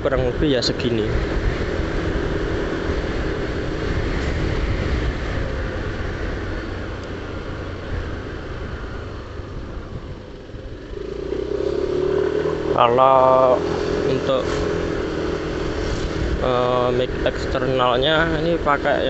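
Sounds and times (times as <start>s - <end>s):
scooter engine humming: 0.0s - 19.0s
wind noise on microphone: 0.0s - 19.0s.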